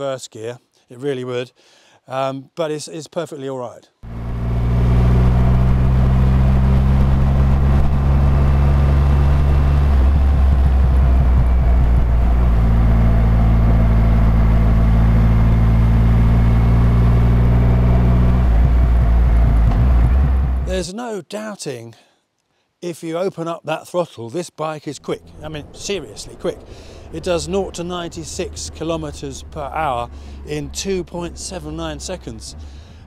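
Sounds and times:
motorcycle engine running: 4.0 - 20.7, 26.7 - 33.0.

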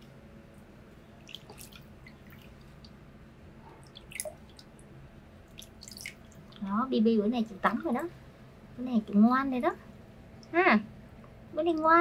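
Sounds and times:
water dripping and splashing in basin: 1.2 - 3.0, 3.8 - 6.7.

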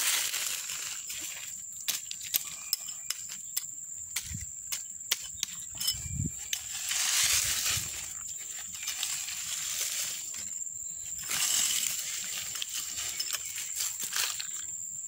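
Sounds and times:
dirt scraping rush: 6.3 - 14.5
grit and stones clicking: 11.2 - 14.7.

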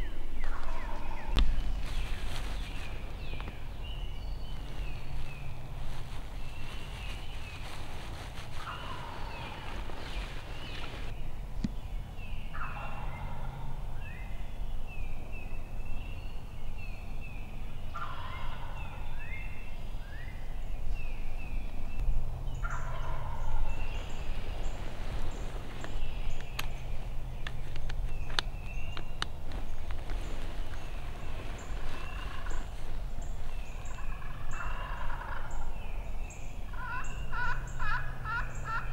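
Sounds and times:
turkey gobbling: 8.6 - 9.7, 18.0 - 18.7, 22.6 - 23.5, 33.8 - 35.6, 36.7 - 38.9.

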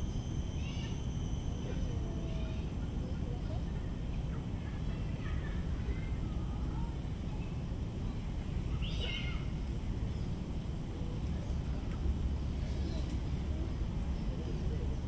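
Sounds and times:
faint bird chirps: 0.0 - 10.4
low background rumble: 0.0 - 15.0.

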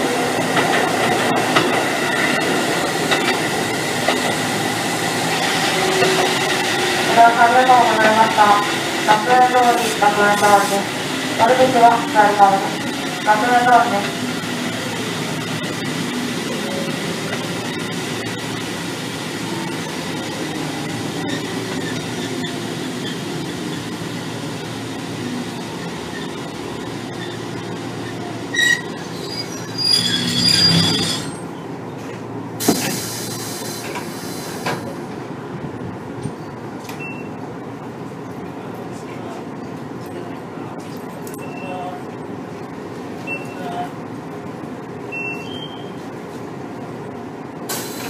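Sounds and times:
train wheels rumbling on rails: 0.0 - 41.3
wheel flanges squealing: 26.0 - 31.5.

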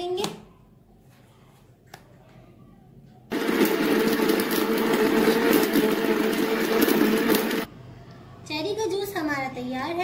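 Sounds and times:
blender motor running: 3.3 - 7.7.

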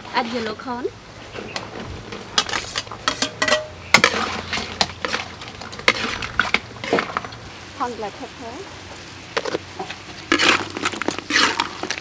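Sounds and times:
metal spatula scraping wok: 2.1 - 7.5, 9.4 - 12.0.

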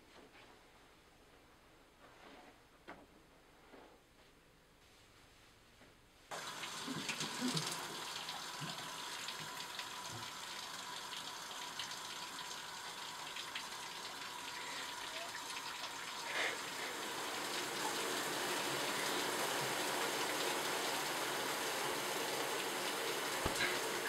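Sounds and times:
water pouring into bathtub: 6.3 - 24.0.

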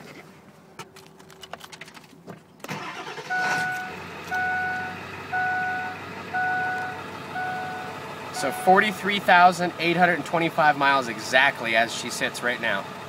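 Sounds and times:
diesel engine starting and idling: 2.6 - 13.0
dashboard warning chime beeping: 3.0 - 9.4.

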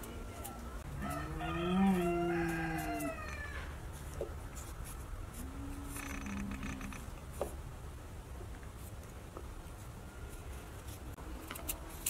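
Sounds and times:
rooster crowing: 1.0 - 3.7.

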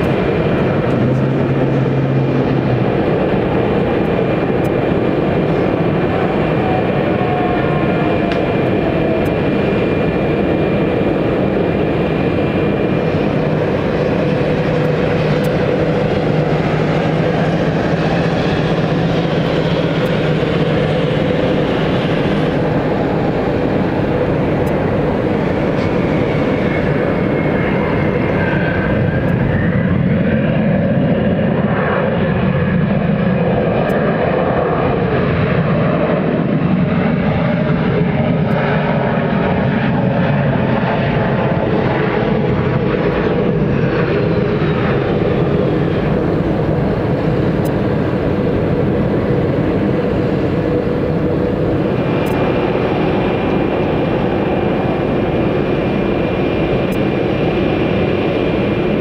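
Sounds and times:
jet engines roaring: 0.0 - 59.0.

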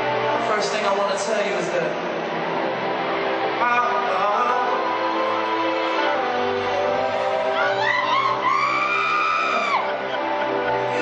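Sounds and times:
man singing: 3.6 - 8.8.

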